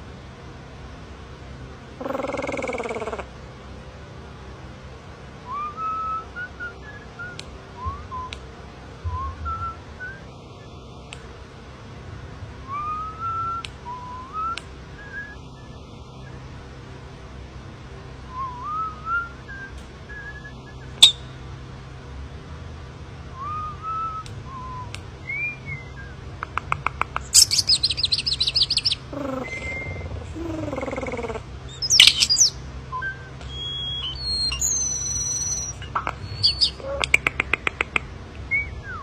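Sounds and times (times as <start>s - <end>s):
faint low hum: 0.0s - 39.0s
starling singing: 2.0s - 3.3s, 24.6s - 39.0s.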